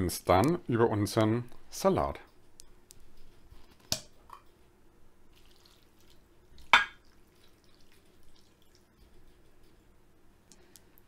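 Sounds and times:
liquid dripping and splashing: 5.3s - 9.2s.

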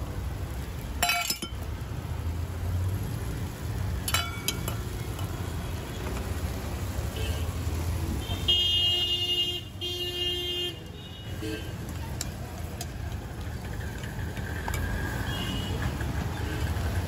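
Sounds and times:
street traffic rumble: 0.0s - 17.0s
vehicle horn tooting: 8.2s - 11.7s.

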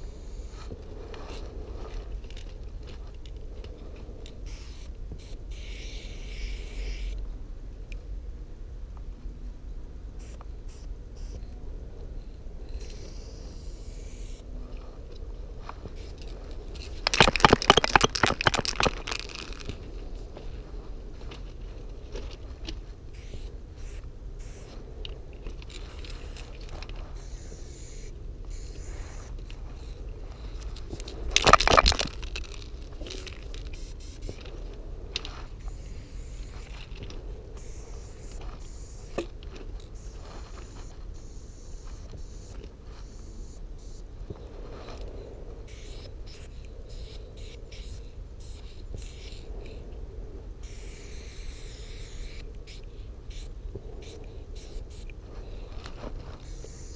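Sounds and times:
spray paint can hissing: 0.1s - 0.6s, 4.4s - 7.2s, 12.8s - 14.4s, 16.0s - 16.2s, 23.1s - 24.8s, 25.8s - 26.5s, 27.2s - 29.4s, 33.1s - 34.4s, 35.6s - 36.7s, 37.6s - 39.2s, 39.9s - 44.0s, 45.7s - 49.4s, 50.6s - 55.1s, 56.4s - 56.9s
bursts of rustling noise: 12.8s - 43.2s, 51.9s - 56.9s.

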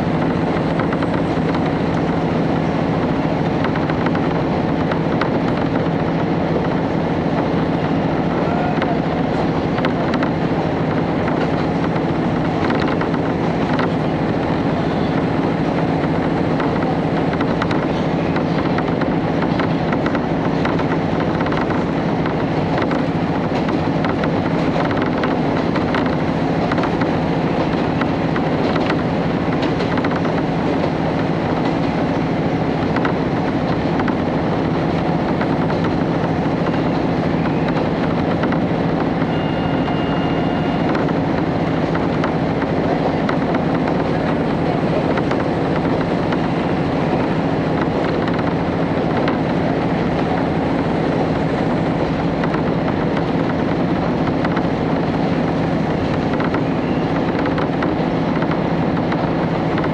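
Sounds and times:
diesel engine droning: 0.0s - 59.9s
wheels rumbling on rail: 0.0s - 59.9s
light clicks from track: 16.6s - 30.9s, 32.8s - 34.3s.

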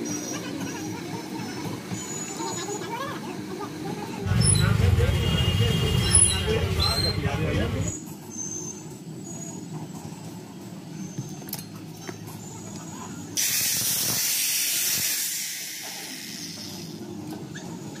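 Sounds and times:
loud hiss: 13.4s - 16.9s.

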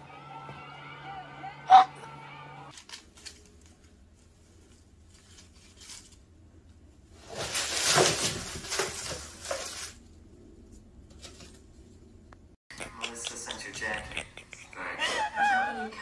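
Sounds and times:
artificial leaves rustling: 2.7s - 12.1s.

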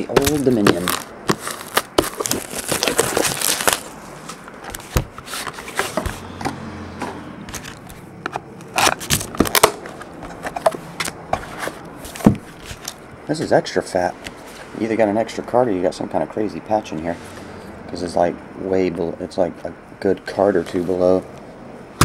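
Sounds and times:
taps and clicks of box handling: 0.0s - 2.9s
plastic wrap crinkling and tearing: 0.0s - 6.0s.

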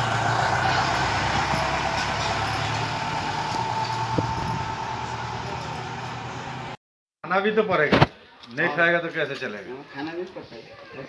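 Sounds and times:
jeep engine running: 0.0s - 6.8s.

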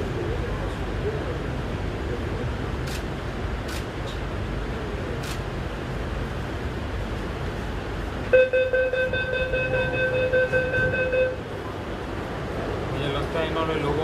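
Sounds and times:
train carriage low hum: 0.0s - 14.0s.

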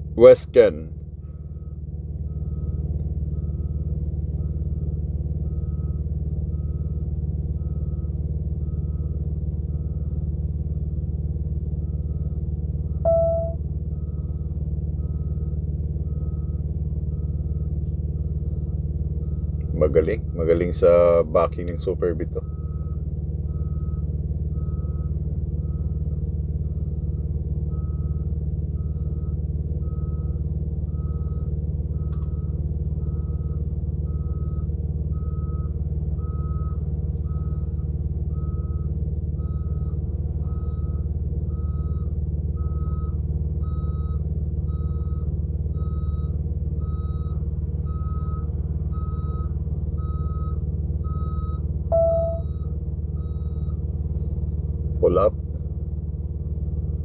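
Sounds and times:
truck engine idling: 0.0s - 57.0s
truck backup alarm beeping: 0.2s - 10.4s, 11.7s - 54.4s
low tone: 12.9s - 15.4s, 51.1s - 53.7s.

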